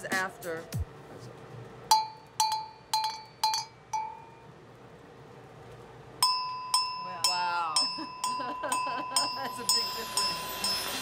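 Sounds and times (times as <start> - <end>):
brighter bell ringing: 6.2 - 11.0
dark metal bell clanking: 6.2 - 11.0.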